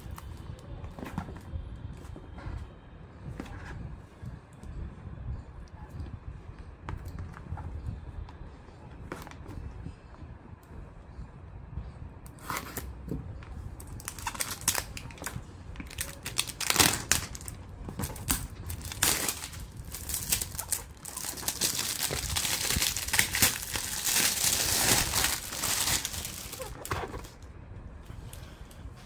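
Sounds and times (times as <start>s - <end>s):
plastic packaging crinkling: 13.8s - 27.4s.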